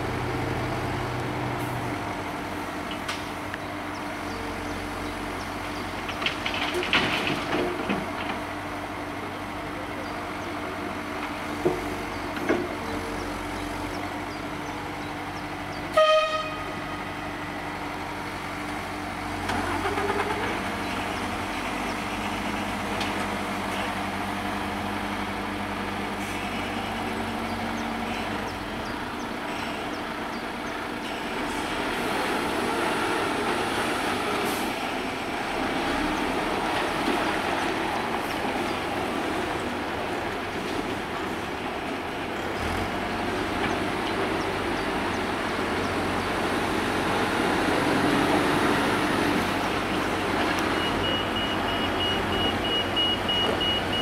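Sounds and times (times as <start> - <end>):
diesel engines running: 0.0 - 54.0
truck horn blast: 15.9 - 17.1.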